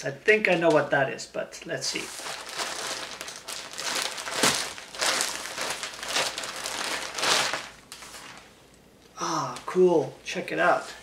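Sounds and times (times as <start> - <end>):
plastic bag crinkling: 2.0 - 8.5.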